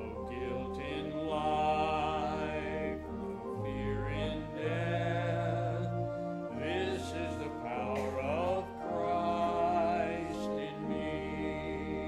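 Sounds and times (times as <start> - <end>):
church organ chords: 0.0 - 12.0
man singing a hymn: 0.0 - 12.0.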